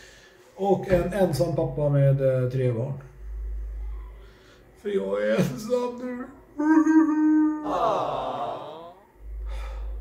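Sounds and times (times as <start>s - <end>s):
man humming a steady note: 6.5s - 10.0s.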